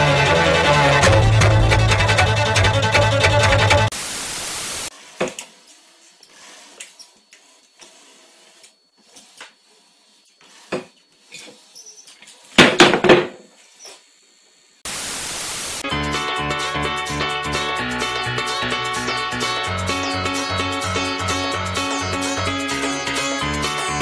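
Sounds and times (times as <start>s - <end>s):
music: 0.0s - 3.9s, 15.8s - 24.0s
tv static hiss: 3.9s - 4.9s, 14.0s - 15.8s.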